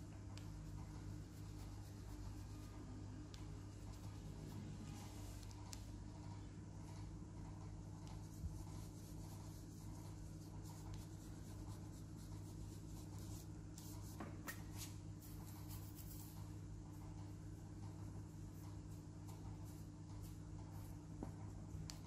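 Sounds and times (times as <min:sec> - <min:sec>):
low electrical hum: 0:00.0 - 0:22.0
pencil scratching on paper: 0:00.4 - 0:05.8, 0:08.0 - 0:14.2, 0:15.2 - 0:17.2.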